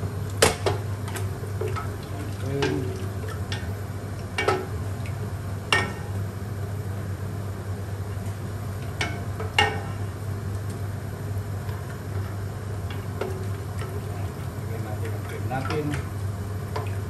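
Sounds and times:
steady low hum: 0.0s - 17.0s
wooden spoon stirring in metal pot: 11.7s - 17.0s.

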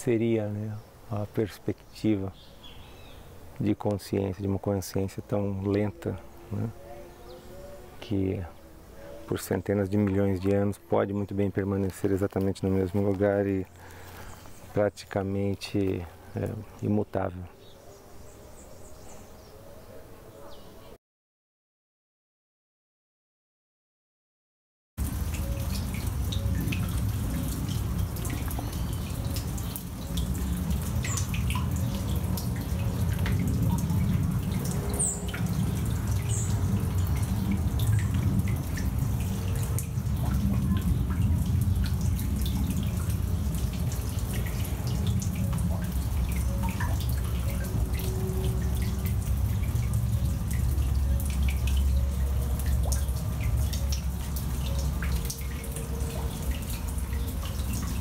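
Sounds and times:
water drips: 1.4s - 6.7s, 9.3s - 16.9s, 25.0s - 58.0s
water trickling down rock: 9.6s - 16.9s, 25.0s - 58.0s
steady low rumble: 26.0s - 51.8s.

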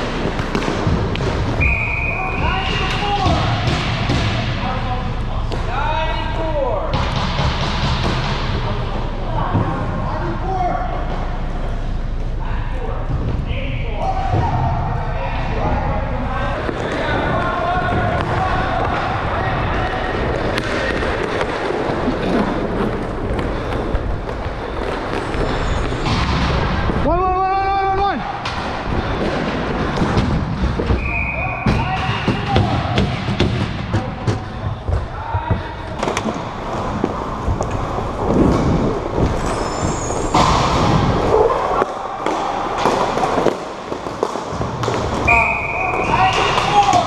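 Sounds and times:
skates scraping on rink floor: 0.0s - 5.7s, 16.4s - 27.1s, 28.3s - 47.0s
hockey sticks and puck clacking: 0.0s - 9.8s, 16.5s - 27.1s, 28.3s - 47.0s
skate wheels rolling on plastic floor: 16.6s - 26.0s, 36.0s - 40.3s
movement rumble: 33.3s - 45.2s.

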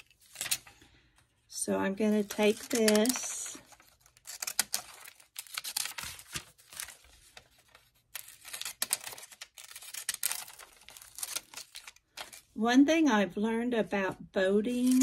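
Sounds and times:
magazine page tearing: 0.0s - 0.8s, 2.1s - 12.6s
paper rustling: 0.0s - 1.2s, 2.0s - 12.6s, 14.7s - 15.0s.

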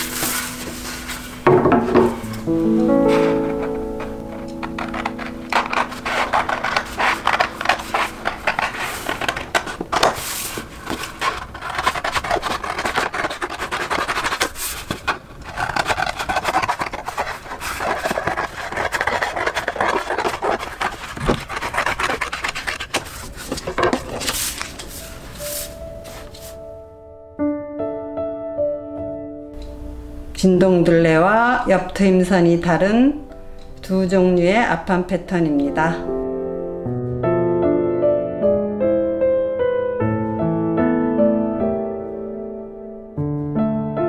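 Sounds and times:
paper crackling and rustling: 0.0s - 26.6s
scissors snipping paper: 3.1s - 25.0s.

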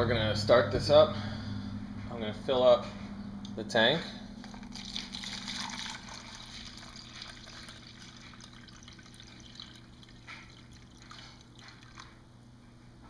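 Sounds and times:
water pouring into plastic tub: 4.4s - 12.2s
water drips: 4.5s - 12.2s.

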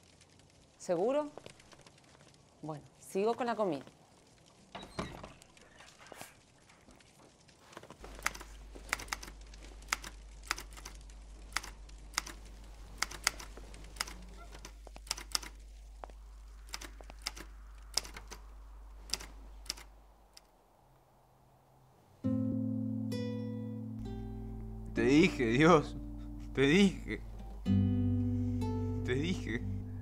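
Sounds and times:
low steady hum: 8.0s - 21.6s, 22.2s - 30.0s
keyboard typing: 8.2s - 15.6s, 16.7s - 18.4s.

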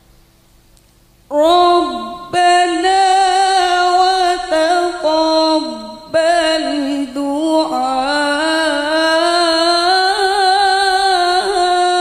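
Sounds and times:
woman reciting melodically: 1.3s - 12.0s.

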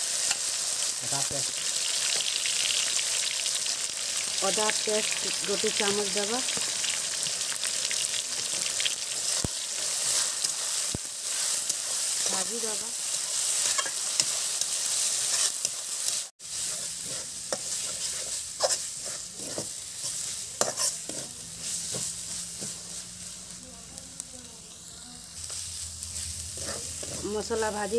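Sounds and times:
food sizzling in hot oil: 0.0s - 27.9s
steel spatula scraping pan: 16.6s - 23.0s, 26.2s - 27.7s.

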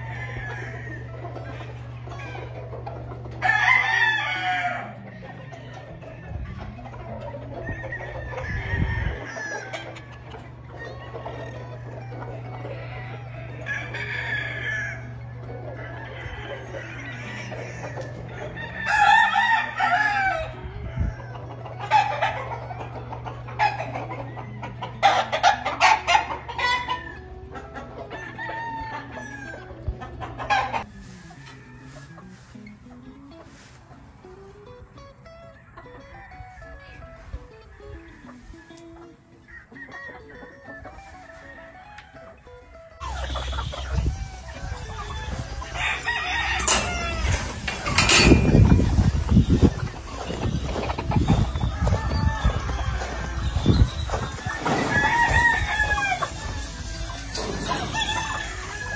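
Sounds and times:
chickens clucking: 0.0s - 58.9s
roosters crowing: 0.0s - 58.9s
music track: 21.4s - 58.9s.

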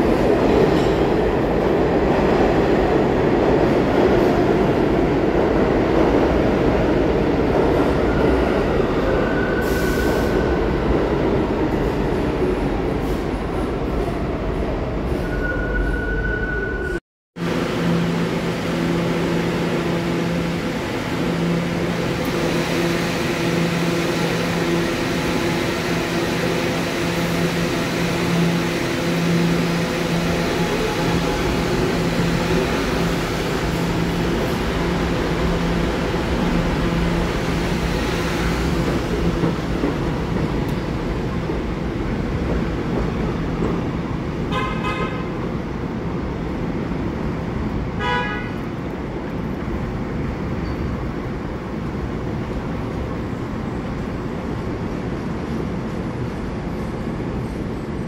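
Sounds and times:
train wheels rumbling on track: 17.4s - 58.0s
train horn blasts: 44.5s - 45.3s, 48.0s - 48.6s.

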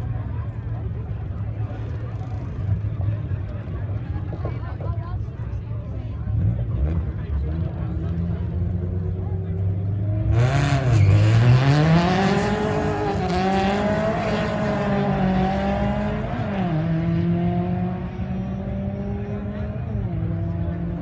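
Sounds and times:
drag race car accelerating: 6.3s - 21.0s.

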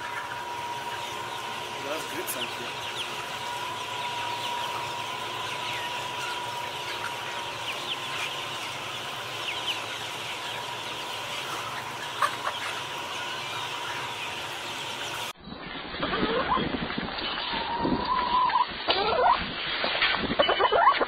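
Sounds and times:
steady high hum: 0.0s - 15.4s
chickens peeping and clucking: 0.0s - 21.0s.

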